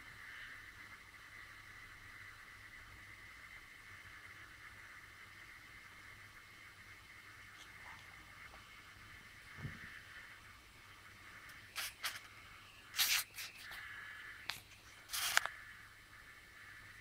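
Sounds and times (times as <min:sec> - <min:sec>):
faint steady hiss: 0:00.0 - 0:17.0
soft low thud: 0:09.6 - 0:09.9
handling rustles and scrapes: 0:13.0 - 0:13.8, 0:14.5 - 0:15.5.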